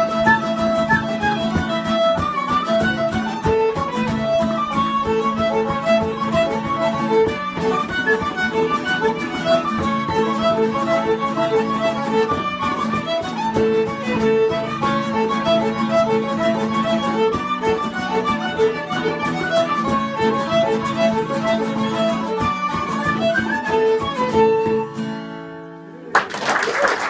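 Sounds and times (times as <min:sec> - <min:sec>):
tin whistle: 0:00.0 - 0:01.5
frame drum beat: 0:00.0 - 0:23.1
fiddle: 0:00.0 - 0:25.8
guitar accompaniment: 0:00.0 - 0:27.0.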